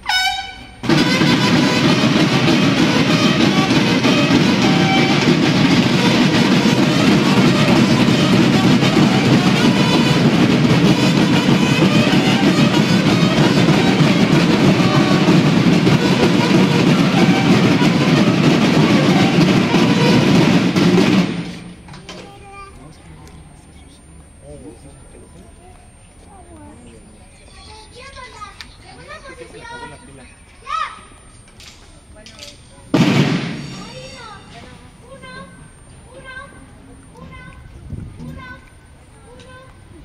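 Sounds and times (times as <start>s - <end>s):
snare drums playing cadence: 0.0s - 22.2s, 32.5s - 34.6s.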